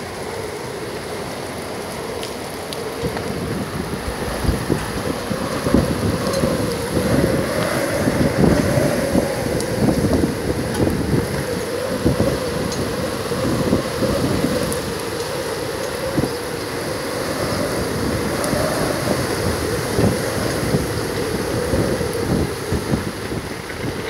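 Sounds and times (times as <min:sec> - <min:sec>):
heavy rain on wooden deck: 0:00.0 - 0:24.0
wind buffeting microphone: 0:00.0 - 0:24.0.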